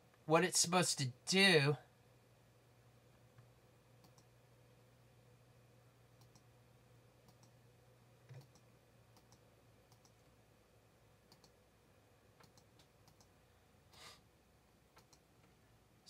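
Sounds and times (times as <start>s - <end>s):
faint low hum: 0.0s - 16.0s
computer mouse clicks: 3.4s - 4.3s, 6.2s - 6.5s, 7.2s - 7.6s, 8.3s - 10.3s, 11.3s - 11.6s, 12.4s - 13.3s, 15.0s - 15.6s.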